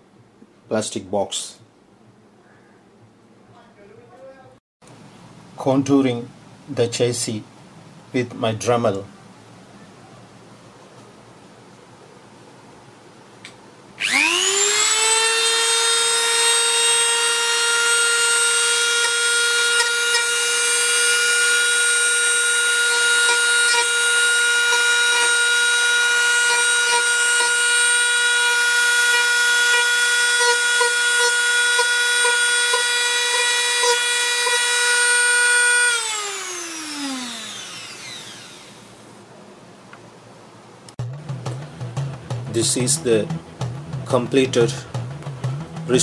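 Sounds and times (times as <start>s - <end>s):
rotary tool sanding plastic: 14.0s - 39.0s.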